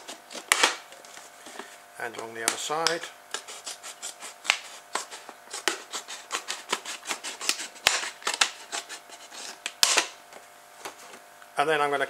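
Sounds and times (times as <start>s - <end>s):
scissors cutting plastic bottle: 2.4s - 9.0s, 9.6s - 10.1s.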